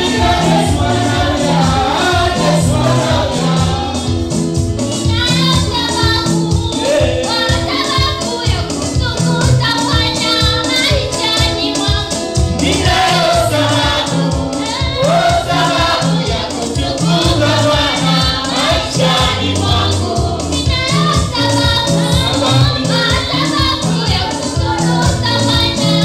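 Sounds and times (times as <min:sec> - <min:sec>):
backing vocals: 0:00.0 - 0:04.2
woman singing lead: 0:00.0 - 0:04.2, 0:04.9 - 0:26.0
electronic keyboard with steady beat: 0:00.0 - 0:26.0.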